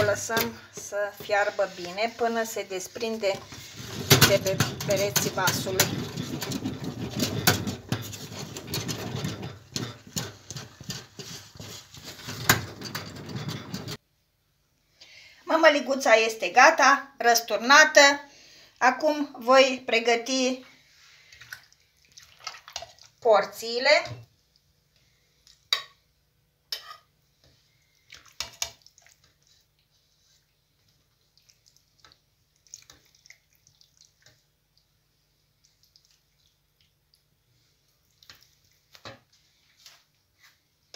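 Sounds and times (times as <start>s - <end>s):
wooden spoon scraping metal pot: 0.0s - 14.0s
wet squelching of cabbage: 20.8s - 23.2s, 27.6s - 40.6s.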